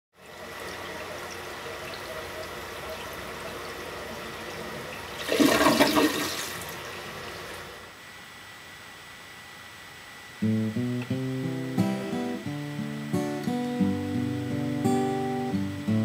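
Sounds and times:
toilet flushing: 0:00.2 - 0:07.8.

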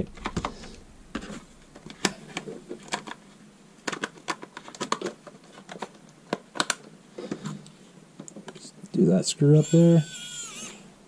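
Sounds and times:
plastic clicks and rattles: 0:00.0 - 0:03.2, 0:03.8 - 0:07.5.

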